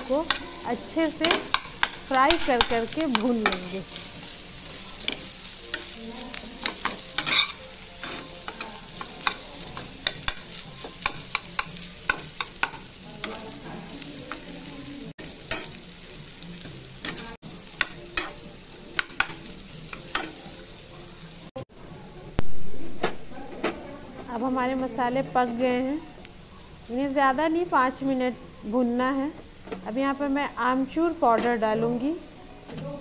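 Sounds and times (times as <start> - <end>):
metal spatula scraping a pan: 0.0 - 13.6
food sizzling in oil: 0.0 - 21.7, 24.2 - 32.4.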